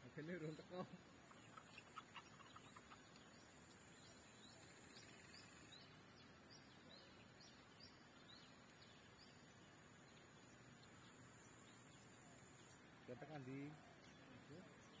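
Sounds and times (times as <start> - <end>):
steady high hiss: 0.0 - 15.0
small bird chirping: 0.1 - 15.0.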